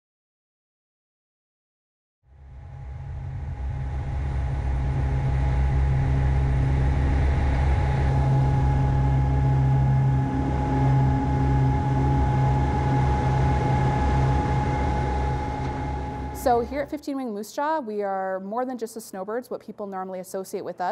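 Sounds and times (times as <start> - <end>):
turboprop engine drone with whine: 2.3 - 17.0.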